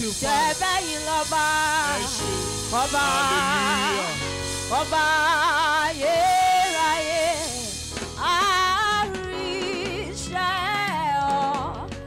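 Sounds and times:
gospel choir singing: 0.0s - 7.8s
soloist singing with vibrato: 0.0s - 11.7s
musical accompaniment: 0.0s - 12.0s.

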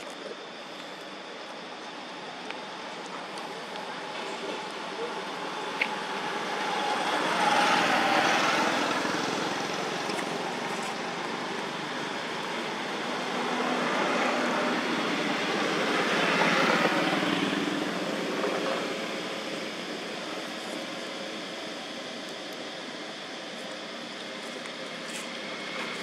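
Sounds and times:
vehicles passing: 3.2s - 20.3s.

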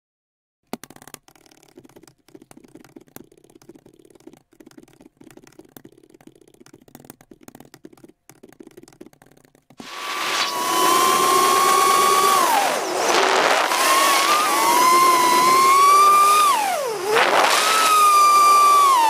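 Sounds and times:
keyboard typing: 0.7s - 10.5s.

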